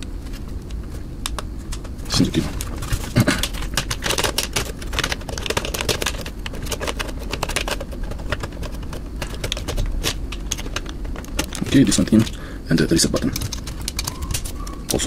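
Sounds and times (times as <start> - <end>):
plastic clicks and rattles: 2.6 - 12.4, 13.1 - 15.0.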